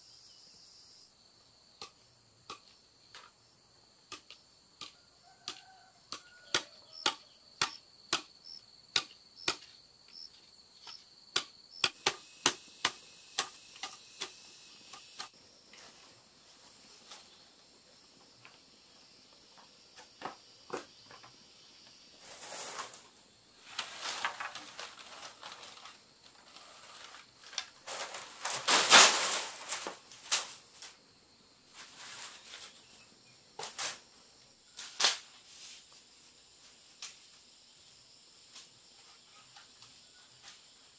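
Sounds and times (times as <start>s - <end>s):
bamboo being chopped: 4.1s - 9.8s, 10.8s - 15.4s
insect trilling: 11.6s - 15.4s
bamboo tubes clattering: 22.2s - 31.0s.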